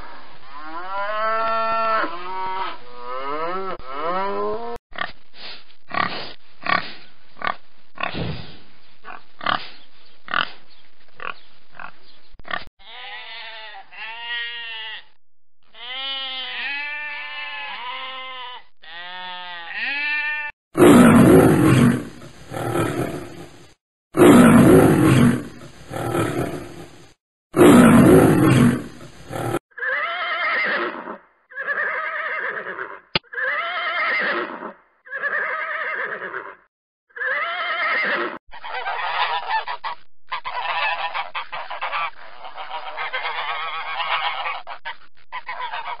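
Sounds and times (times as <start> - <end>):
sheep bleating: 12.8 - 20.5
horse whinnies: 29.8 - 38.4
swans honking: 38.5 - 46.0.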